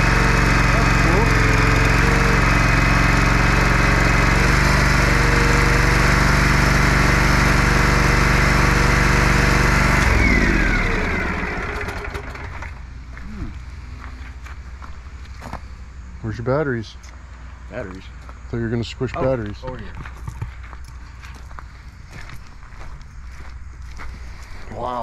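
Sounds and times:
vehicle engine running: 0.0 - 16.4.

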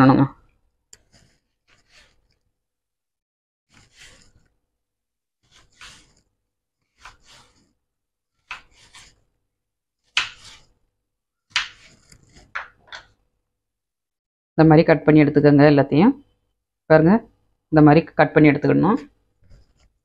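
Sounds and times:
knife cutting on wooden board: 1.0 - 2.4, 3.7 - 4.6, 5.4 - 6.3, 6.9 - 7.8, 8.4 - 9.3, 10.1 - 10.8, 11.5 - 13.1.

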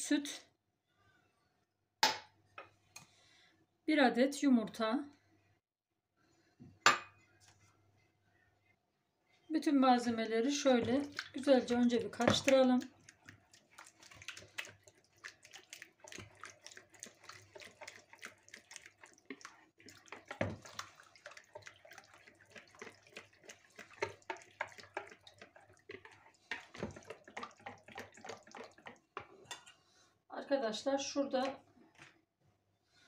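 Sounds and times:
whisk beating batter: 10.4 - 29.4
whisk ticking against bowl: 10.8 - 29.3.

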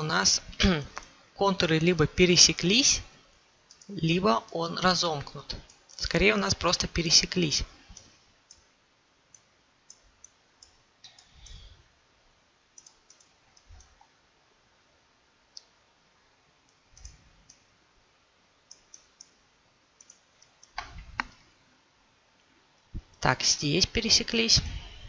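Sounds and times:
faint computer mouse clicks: 9.3 - 11.6, 12.8 - 14.1, 16.7 - 17.6, 18.7 - 19.4, 20.0 - 21.4.

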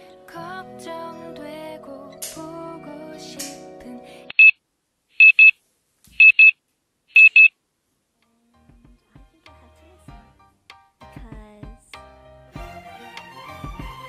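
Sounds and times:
background music: 0.0 - 4.3, 8.4 - 14.0
alarm beeping: 4.3 - 4.6, 5.2 - 5.5, 6.2 - 6.5, 7.2 - 7.5.

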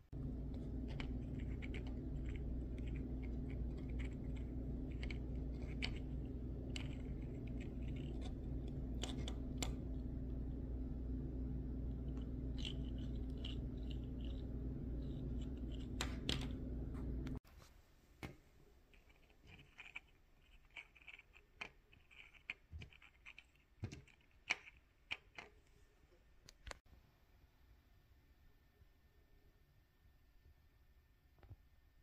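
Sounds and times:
steady low hum: 0.0 - 17.4
paper parts scratching and clicking: 0.1 - 10.2, 12.0 - 16.7, 18.9 - 25.6.

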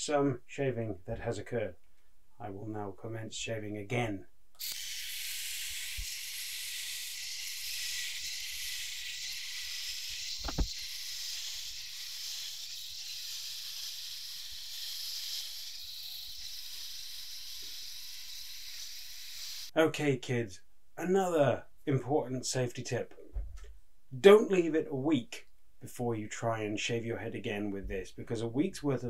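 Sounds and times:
electric shaver cutting hair: 4.6 - 19.7
sharp click: 10.4 - 10.7.

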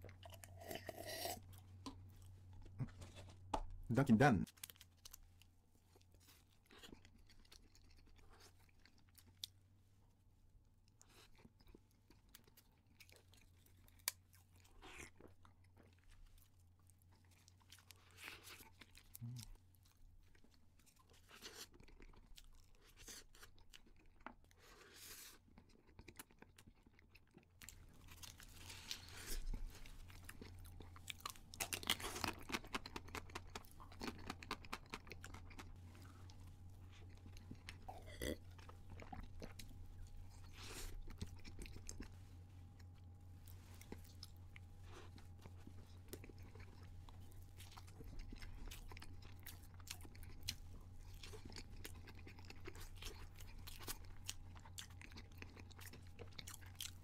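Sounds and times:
person chewing muffin: 0.0 - 3.5, 4.2 - 57.0
steady low hum: 33.2 - 57.0.

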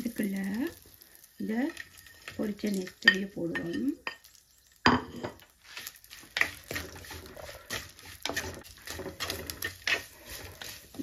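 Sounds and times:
ladle scraping in clay pot: 1.6 - 3.9, 5.1 - 11.0.

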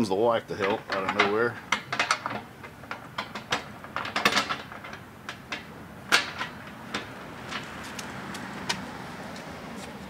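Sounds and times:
small hardware clicking and knocking: 0.6 - 8.1.

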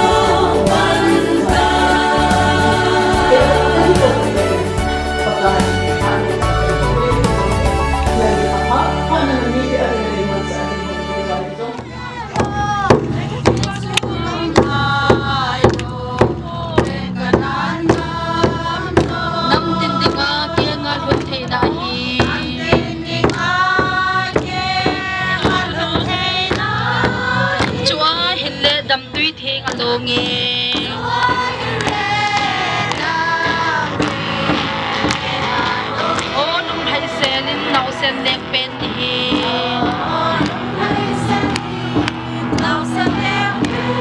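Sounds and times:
women singing a hymn: 0.0 - 44.0
hand claps: 11.8 - 20.2, 23.2 - 27.8, 29.6 - 36.3, 39.3 - 43.8.

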